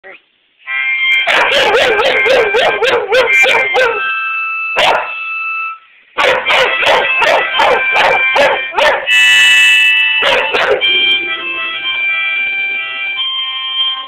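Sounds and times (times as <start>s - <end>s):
dogs barking: 1.2s - 4.0s, 4.8s - 5.2s, 6.2s - 9.1s, 10.2s - 10.9s
held musical chord: 6.5s - 14.0s.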